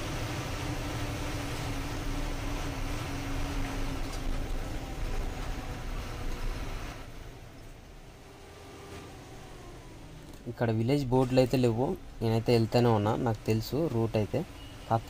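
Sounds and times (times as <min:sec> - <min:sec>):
road noise: 0:00.0 - 0:15.0.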